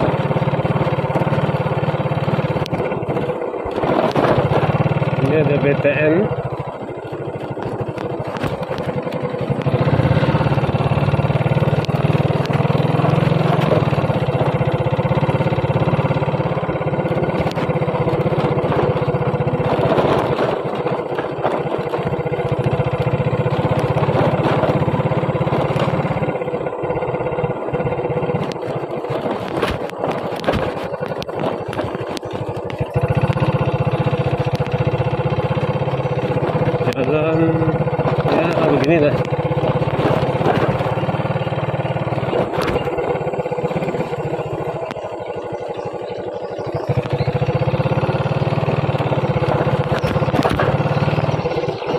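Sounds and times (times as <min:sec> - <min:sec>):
motorbike engine running: 0:00.0 - 0:51.9
knocks and rattles from bumps: 0:28.1 - 0:45.2, 0:46.9 - 0:51.9.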